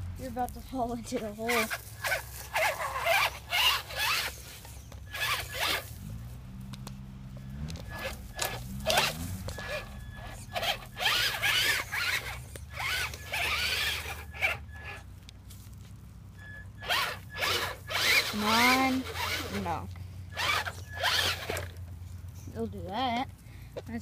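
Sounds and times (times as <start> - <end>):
electric toy motor whining: 1.1 - 6.2, 7.4 - 15.1, 16.4 - 21.8.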